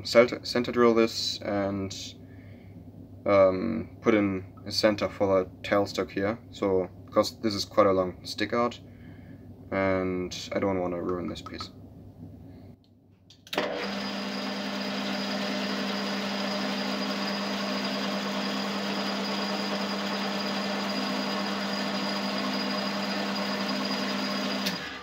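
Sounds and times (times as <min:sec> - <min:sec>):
metal lathe whirring: 0:13.6 - 0:25.0.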